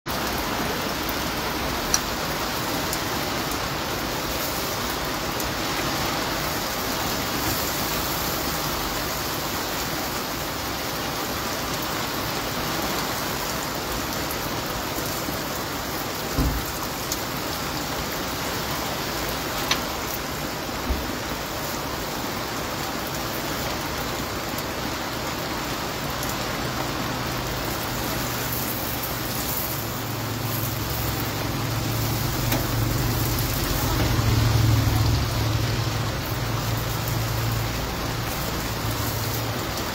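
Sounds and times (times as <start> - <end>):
food frying in oil: 0.1 - 39.9
heavy rain hiss: 0.1 - 39.9
tongs clicking on griddle: 32.4 - 33.5.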